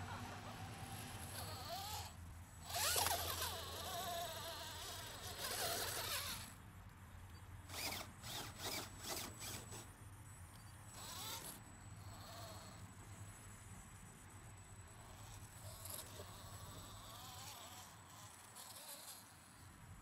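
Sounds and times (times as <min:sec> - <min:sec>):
electric motors whining: 0:00.7 - 0:06.6, 0:07.7 - 0:10.0, 0:10.6 - 0:12.9, 0:14.9 - 0:19.6.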